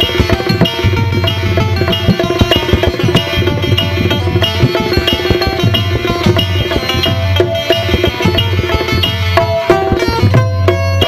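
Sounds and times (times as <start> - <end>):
fast hand drum rhythm: 0.0 - 11.0
harmonium melody: 0.0 - 11.0.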